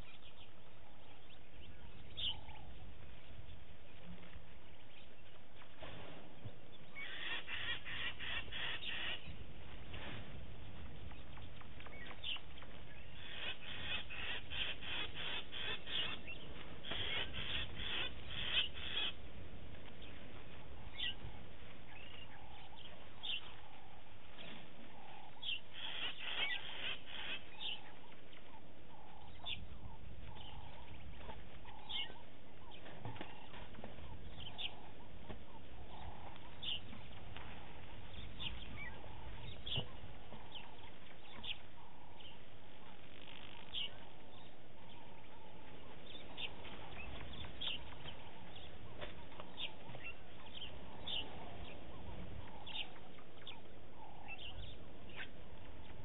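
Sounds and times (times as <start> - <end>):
low steady rumble: 0.0 - 56.0
lower bird call: 6.0 - 19.4.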